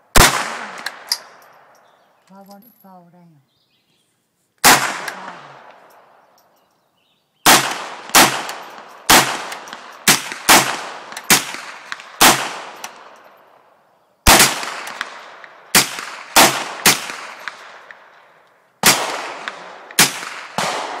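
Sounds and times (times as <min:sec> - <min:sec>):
rifle shots with echo: 0:00.1 - 0:01.8, 0:04.6 - 0:06.2, 0:07.4 - 0:13.3, 0:14.2 - 0:21.0.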